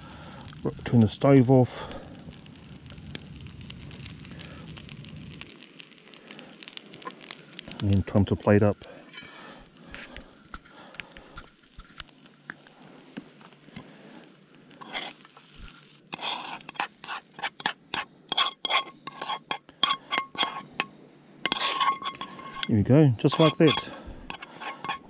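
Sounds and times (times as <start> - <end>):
metal spoon scraping frying pan: 9.1 - 9.6, 14.8 - 15.2, 16.1 - 25.0.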